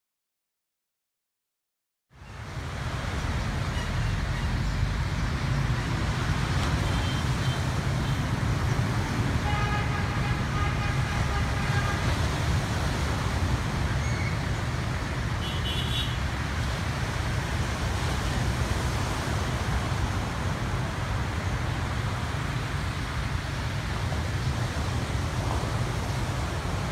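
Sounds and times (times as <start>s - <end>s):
road traffic rumble: 2.1s - 26.9s
held horn-like tone: 9.4s - 12.2s.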